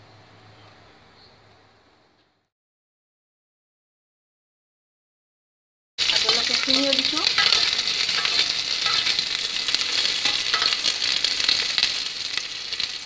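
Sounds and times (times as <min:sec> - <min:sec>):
food sizzling in hot oil: 0:06.0 - 0:13.0.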